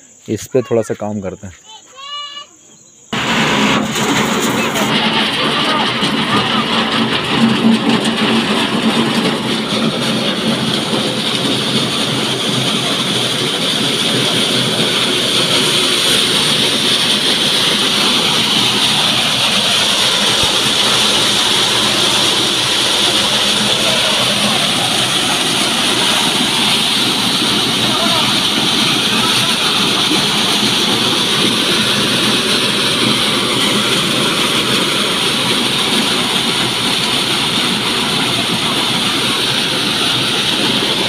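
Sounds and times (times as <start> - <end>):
maize thresher running: 3.1 - 41.0.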